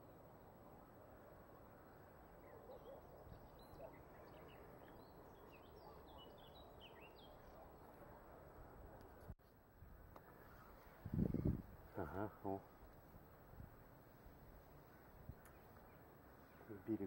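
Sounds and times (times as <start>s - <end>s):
faint high bird chirps: 1.8s - 8.0s
background hiss: 7.0s - 17.0s.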